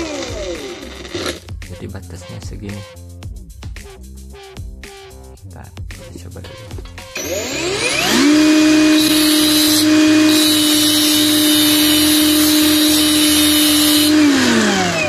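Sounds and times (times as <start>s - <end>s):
copper wire grinding on wheel: 0.0s - 1.5s, 7.2s - 15.0s
electric grinder motor: 0.0s - 1.5s, 7.2s - 15.0s.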